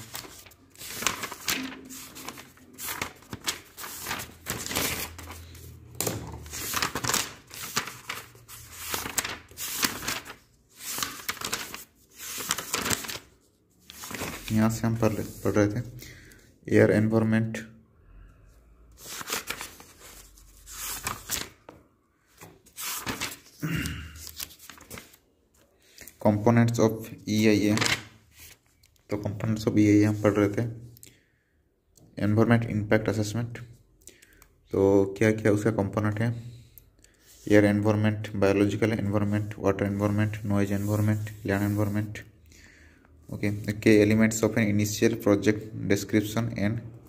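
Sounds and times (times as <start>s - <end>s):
paper pages rustling: 0.0s - 15.8s, 19.0s - 26.2s, 27.3s - 29.1s, 39.0s - 42.2s.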